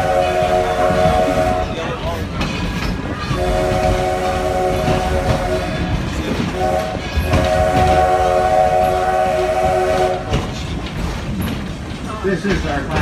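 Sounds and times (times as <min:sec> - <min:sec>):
steam locomotive chime whistle: 0:00.0 - 0:01.9, 0:03.4 - 0:10.4
train running rumble: 0:00.0 - 0:13.0.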